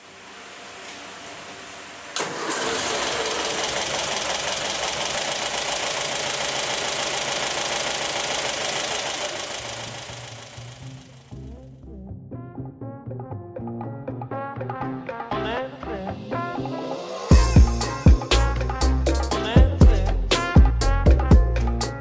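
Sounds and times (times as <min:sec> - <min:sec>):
car engine starting and idling: 0:00.0 - 0:11.6.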